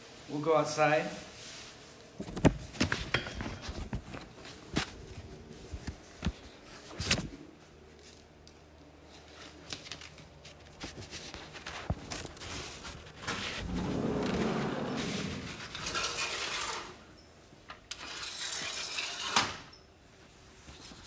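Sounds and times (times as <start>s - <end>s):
steady rushing noise: 13.4s - 15.9s.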